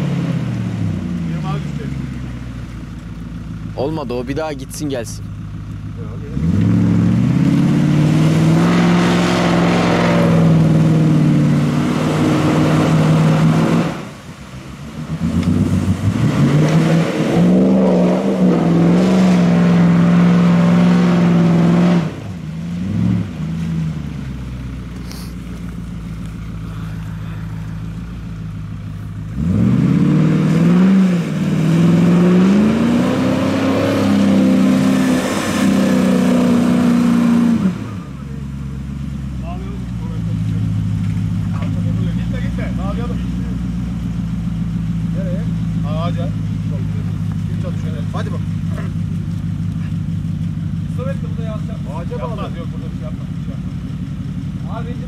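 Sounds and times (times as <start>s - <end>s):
car engine revving in mud: 0.0s - 55.0s.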